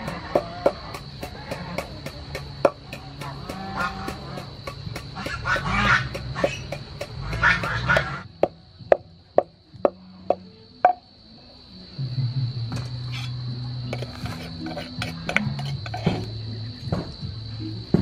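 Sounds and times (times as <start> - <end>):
wooden pestle pounding in mortar: 0.0 - 11.0, 13.9 - 16.3
farm animal calls: 3.2 - 4.5, 5.2 - 8.3.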